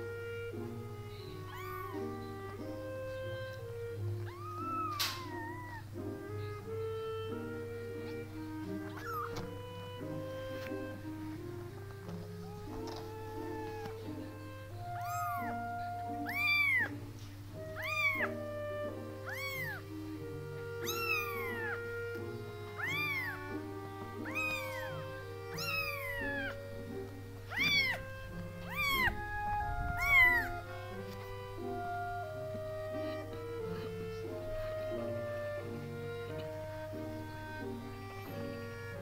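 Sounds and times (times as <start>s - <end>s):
soft background music: 0.0s - 39.0s
kitten mewing: 1.1s - 3.6s, 4.2s - 5.8s, 7.3s - 11.1s, 12.0s - 31.3s.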